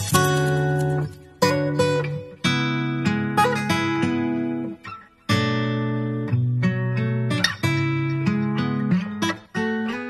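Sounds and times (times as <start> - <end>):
acoustic guitar music: 0.0 - 10.0.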